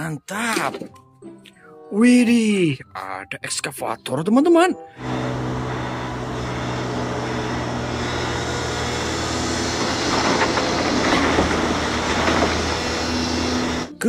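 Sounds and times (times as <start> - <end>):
heavy diesel engine running: 5.0 - 14.0.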